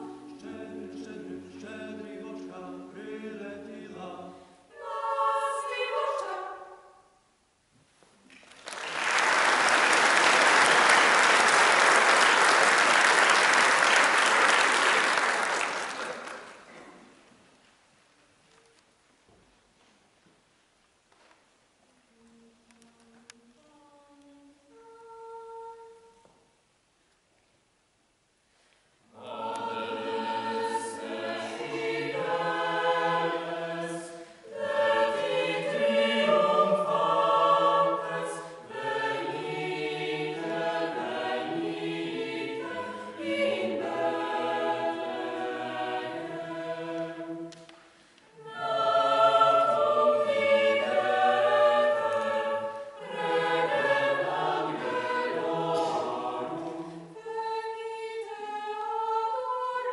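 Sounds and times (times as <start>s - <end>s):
mixed choir singing a cappella: 0.0s - 7.1s, 29.1s - 59.9s.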